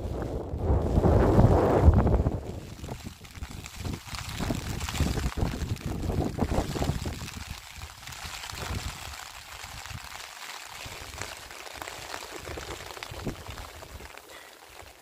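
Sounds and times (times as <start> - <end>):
wind buffeting microphone: 0.0 - 7.6
steady rain hiss: 0.0 - 15.0.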